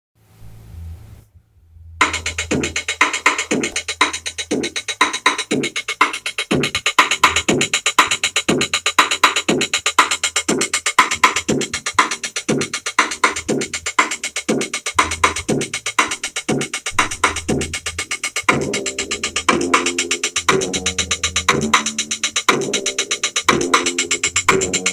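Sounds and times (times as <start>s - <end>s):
low bass: 0.3s - 4.6s, 16.9s - 24.9s
drum machine electronic beat: 2.0s - 24.9s.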